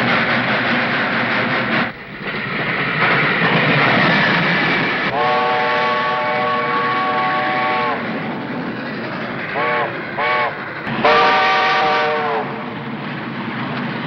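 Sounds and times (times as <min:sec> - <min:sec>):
steam train running: 0:00.0 - 0:14.0
steam whistle blast: 0:05.1 - 0:08.0, 0:09.6 - 0:12.7.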